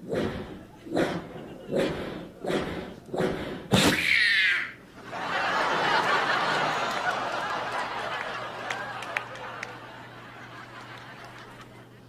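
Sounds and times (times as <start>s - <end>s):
audience laughing: 0.1s - 3.1s, 4.9s - 12.0s.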